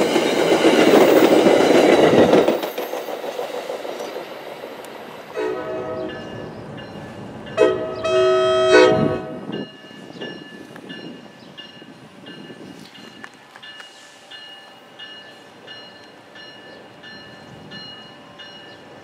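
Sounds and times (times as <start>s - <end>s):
train rumble: 0.0s - 19.0s.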